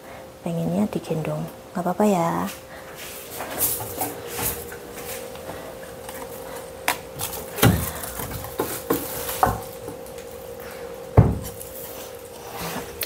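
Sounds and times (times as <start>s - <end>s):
steady hum: 0.0s - 13.0s
kitchen items knocking and clattering: 11.2s - 11.6s.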